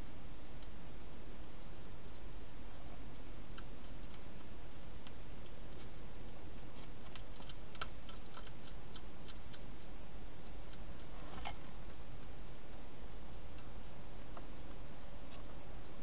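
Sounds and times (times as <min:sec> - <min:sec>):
hedgehog crunching dry food: 0:03.4 - 0:12.5.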